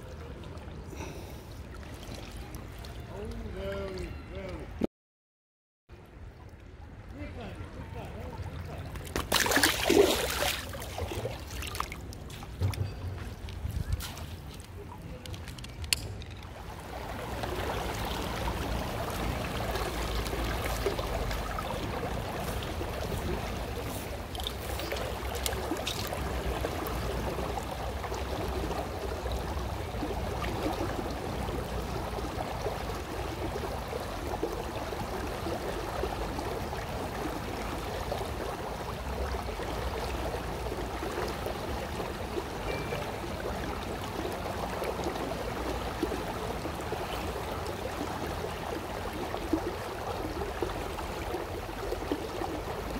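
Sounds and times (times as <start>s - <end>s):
river water rushing: 9.3s - 12.0s, 16.6s - 52.9s.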